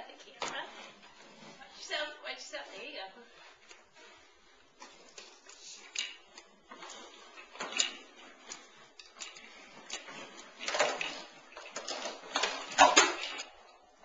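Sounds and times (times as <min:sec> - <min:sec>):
plastic walker clattering on wood floor: 0:09.9 - 0:13.4.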